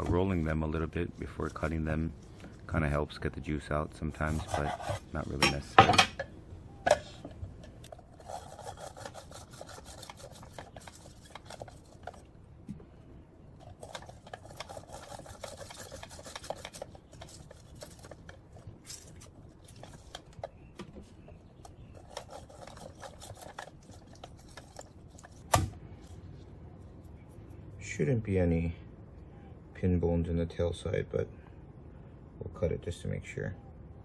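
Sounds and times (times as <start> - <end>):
lime rasping on citrus reamer: 4.1 - 5.4, 7.7 - 12.3, 13.6 - 25.5.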